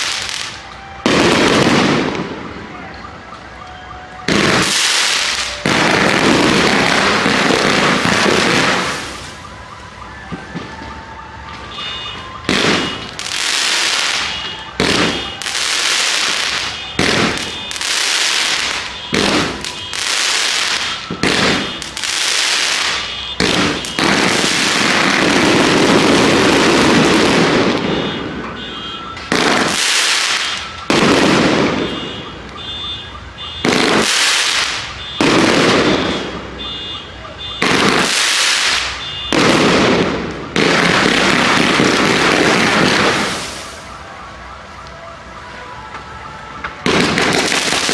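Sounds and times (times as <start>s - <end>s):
fireworks whooshing blasts: 4.3s - 9.6s, 12.4s - 28.5s, 29.2s - 32.0s, 33.6s - 36.6s, 37.6s - 44.0s, 46.8s - 47.9s.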